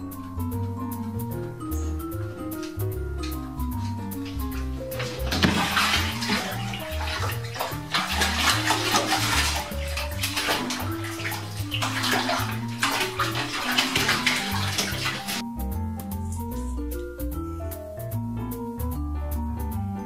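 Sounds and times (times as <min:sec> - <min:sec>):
background music: 0:00.0 - 0:20.0
bathwater sloshing and splashing: 0:02.6 - 0:15.4
cat scrambling at bathtub rim: 0:02.6 - 0:15.4.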